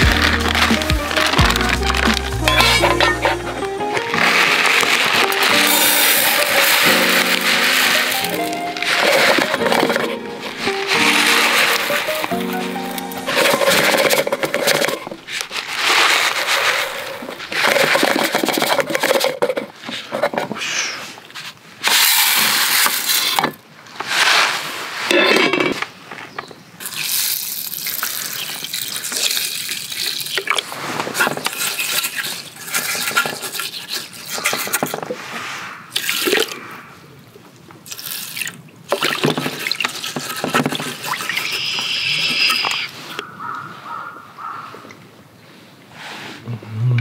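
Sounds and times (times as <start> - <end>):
water sloshing in a metal tin: 38.0 - 41.6.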